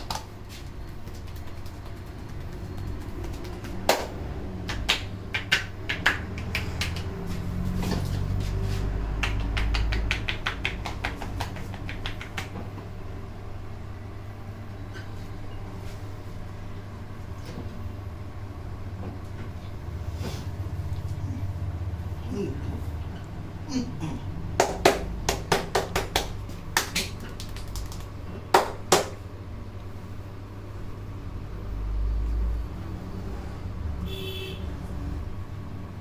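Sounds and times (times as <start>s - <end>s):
hands slapping on bare back: 0.0s - 7.5s, 9.2s - 12.7s, 24.6s - 29.2s
steady low hum: 0.0s - 36.0s.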